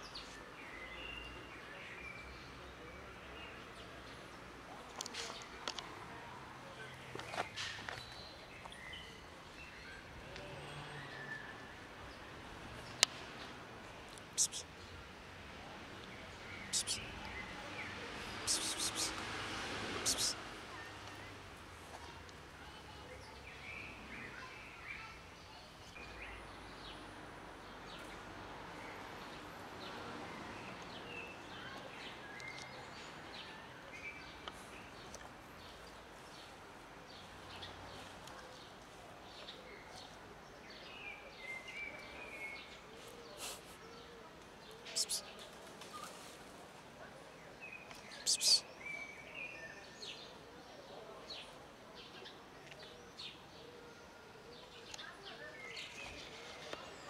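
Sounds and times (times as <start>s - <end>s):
small birds chirping: 6.9s - 15.0s, 16.0s - 19.2s, 20.0s - 21.4s, 28.8s - 46.1s, 47.4s - 50.3s
birds chirping: 14.1s - 15.0s, 16.3s - 19.2s, 20.0s - 21.4s, 44.9s - 45.4s, 47.6s - 50.1s
loud sharp bird call: 18.4s - 19.2s.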